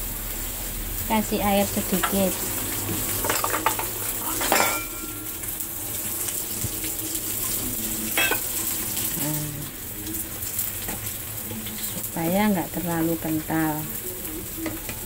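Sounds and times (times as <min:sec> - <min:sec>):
shrimp sizzling in a frying pan: 0:00.0 - 0:15.0
metal utensil clanking against pan: 0:03.2 - 0:05.3, 0:08.2 - 0:08.5.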